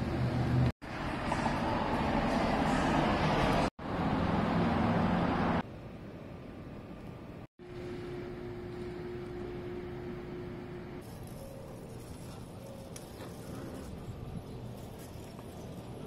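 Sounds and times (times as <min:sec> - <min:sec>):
road noise of passing vehicles: 0:00.0 - 0:16.0
steady low hum: 0:05.6 - 0:16.0.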